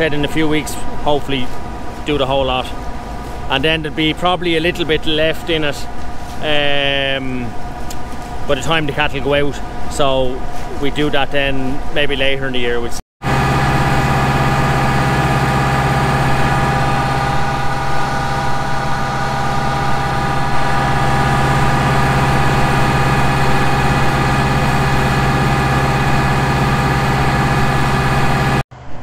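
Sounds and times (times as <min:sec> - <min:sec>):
tractor engine running: 0:13.2 - 0:29.0.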